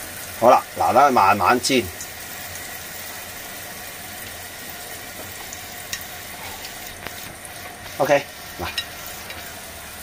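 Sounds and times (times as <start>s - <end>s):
batter sizzling in hot oil: 0.0s - 10.0s.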